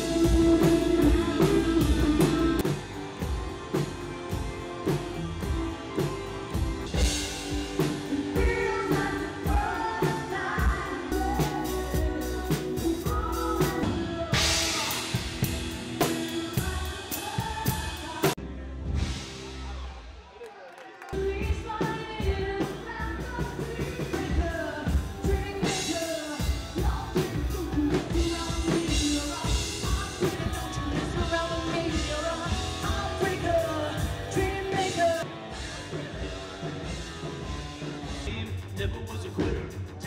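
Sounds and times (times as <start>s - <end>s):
woman singing: 0.0s - 2.8s, 7.8s - 18.4s, 21.2s - 35.3s
electric guitar: 0.0s - 18.6s
drum kit beat: 0.0s - 19.7s, 21.2s - 40.0s.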